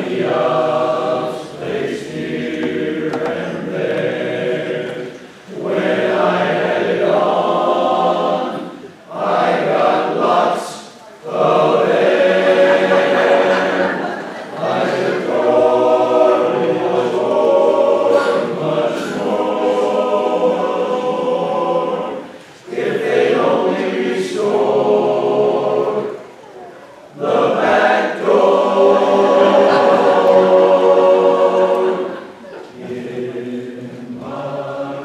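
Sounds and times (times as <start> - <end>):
men's chorus singing a cappella: 0.0 - 26.2, 27.1 - 35.0.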